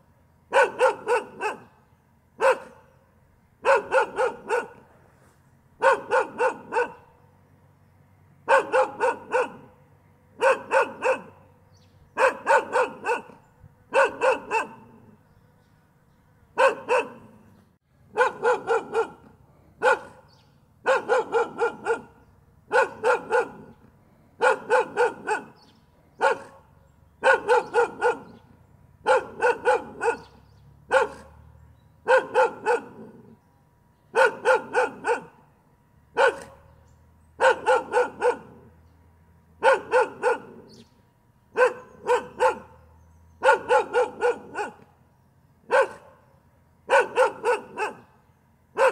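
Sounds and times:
dog barking: 0:00.5 - 0:01.8, 0:02.4 - 0:02.9, 0:03.6 - 0:04.9, 0:05.8 - 0:07.2, 0:08.4 - 0:09.8, 0:10.4 - 0:11.5, 0:12.2 - 0:15.2, 0:16.6 - 0:17.4, 0:18.1 - 0:23.8, 0:24.4 - 0:31.4, 0:32.0 - 0:33.4, 0:34.1 - 0:35.4, 0:36.1 - 0:36.7, 0:37.4 - 0:38.7, 0:39.6 - 0:40.8, 0:41.5 - 0:44.9, 0:45.7 - 0:46.3, 0:46.9 - 0:48.2.

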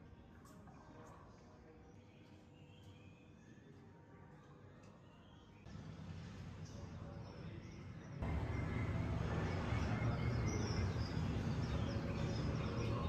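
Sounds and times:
recorded birds chirping: 0:00.2 - 0:05.7, 0:06.6 - 0:13.0
low rumble and hiss: 0:05.7 - 0:13.0.

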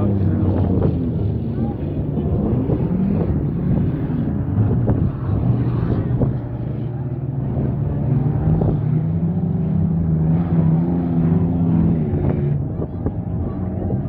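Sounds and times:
car engines racing: 0:00.0 - 0:14.0.

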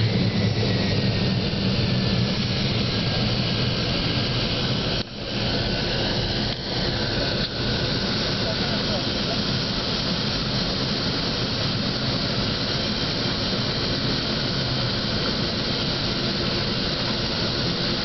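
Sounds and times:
small plane engine running: 0:00.0 - 0:18.0.

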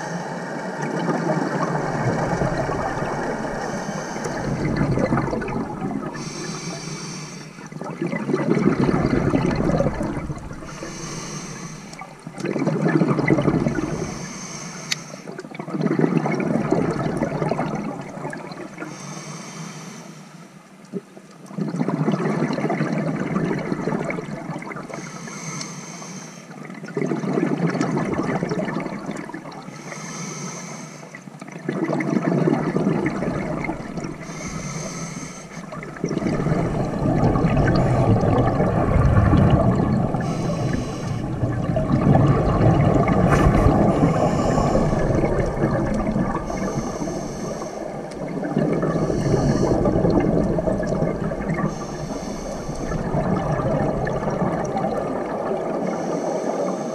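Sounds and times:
exhaled bubbles rushing: 0:00.0 - 0:06.8, 0:07.5 - 0:14.2, 0:15.3 - 0:18.9, 0:20.9 - 0:25.0, 0:26.6 - 0:29.7, 0:31.5 - 0:56.8
regulator inhale hiss: 0:03.0 - 0:04.6, 0:06.2 - 0:07.8, 0:10.6 - 0:12.3, 0:13.8 - 0:15.4, 0:18.8 - 0:20.6, 0:24.9 - 0:26.6, 0:29.7 - 0:31.3, 0:34.0 - 0:37.0, 0:40.1 - 0:41.4, 0:43.2 - 0:48.3, 0:49.0 - 0:50.2, 0:51.6 - 0:53.2, 0:55.8 - 0:56.9.

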